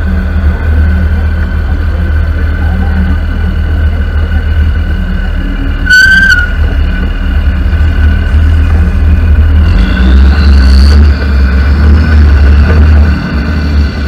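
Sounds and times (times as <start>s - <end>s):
rising whine: 0.0s - 14.0s
truck engine and wind rumble: 0.0s - 14.0s
brief high squeal: 5.8s - 6.6s.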